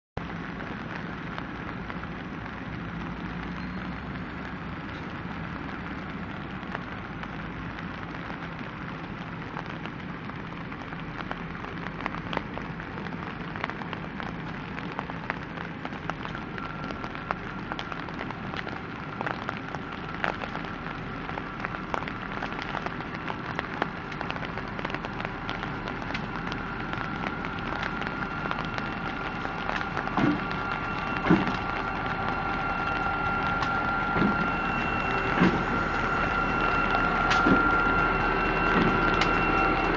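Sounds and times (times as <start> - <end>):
high steady whine: 0.0 - 39.9
rain pattering: 0.0 - 39.9
diesel locomotive running: 14.4 - 39.9.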